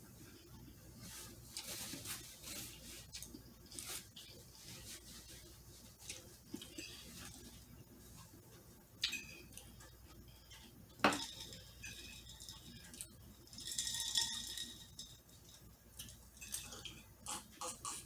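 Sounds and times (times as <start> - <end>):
ice and glass clinking: 11.0 - 17.1.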